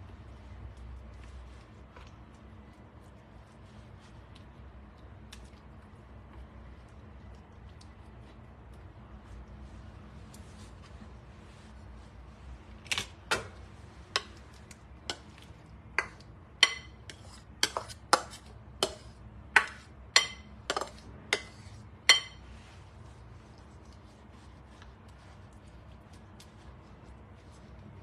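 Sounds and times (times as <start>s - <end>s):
spatula clinking on glass bowl: 16.0s - 22.5s.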